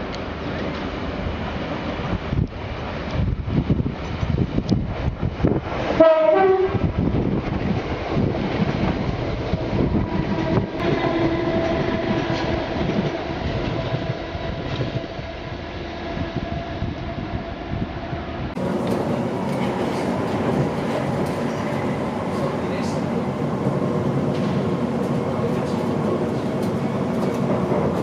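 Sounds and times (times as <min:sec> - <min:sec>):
electric train passing: 0:00.0 - 0:28.0
train horn blast: 0:06.0 - 0:06.9, 0:10.3 - 0:12.7.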